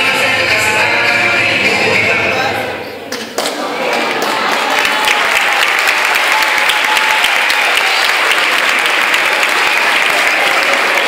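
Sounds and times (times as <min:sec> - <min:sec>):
audience applause: 0:03.8 - 0:11.0.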